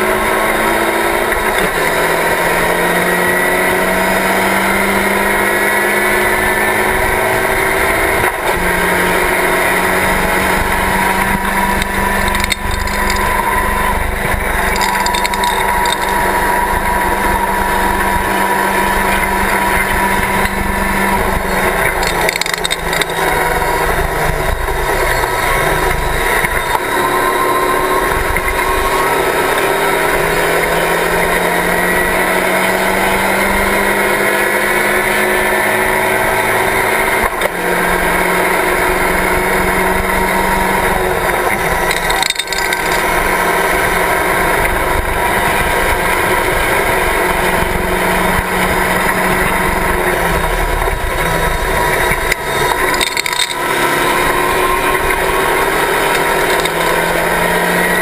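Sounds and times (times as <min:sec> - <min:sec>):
race car engine at high revs: 0:00.0 - 0:58.0
wind and road noise: 0:00.0 - 0:58.0.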